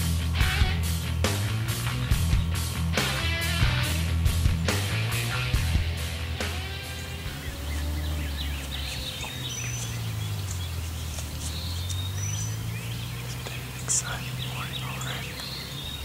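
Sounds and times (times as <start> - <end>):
birds chirping and whistling: 0.0 - 16.0.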